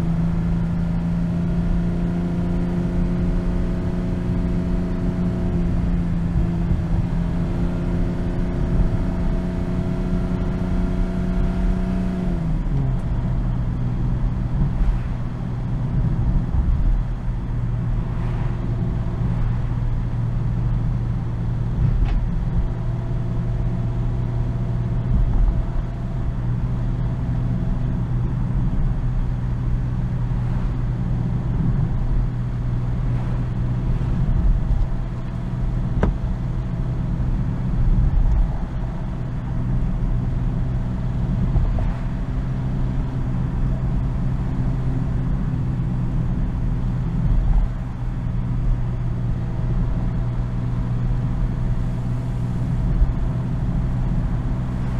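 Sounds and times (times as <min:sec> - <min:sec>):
car engine at steady revs: 0:00.0 - 0:54.9
road and tyre rumble: 0:00.0 - 0:54.9.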